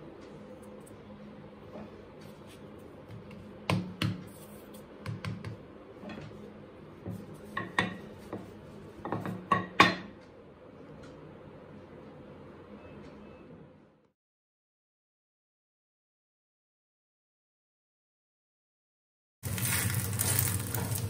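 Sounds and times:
rolling pin on stone worktop: 0:19.4 - 0:21.0.

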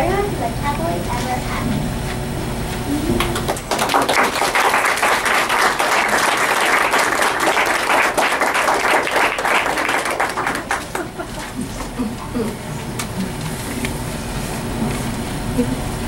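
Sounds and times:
audience applauding: 0:03.1 - 0:11.6.

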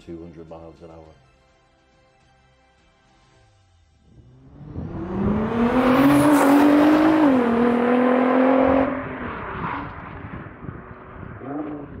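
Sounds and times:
car engine accelerating hard: 0:04.1 - 0:12.0.

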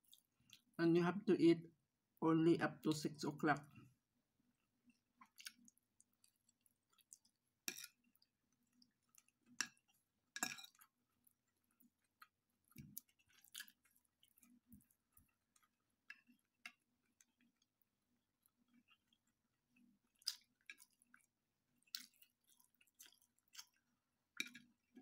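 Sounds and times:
soft chewing: 0:00.0 - 0:00.8, 0:03.5 - 0:25.0
cutlery clinking on ceramic plate: 0:10.4 - 0:10.8.

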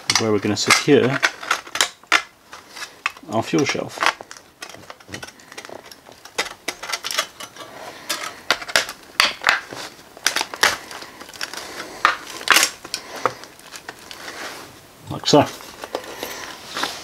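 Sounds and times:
sheet metal scraping and clicking: 0:00.1 - 0:09.0.

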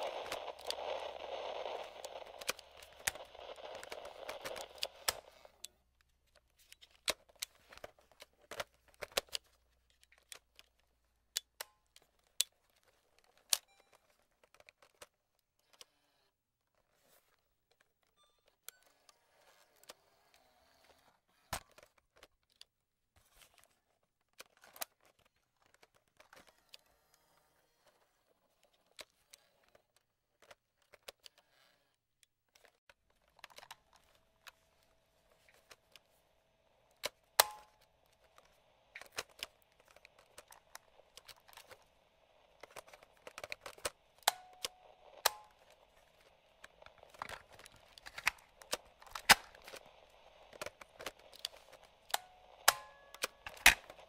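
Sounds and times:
light radio static: 0:00.0 - 0:05.6.

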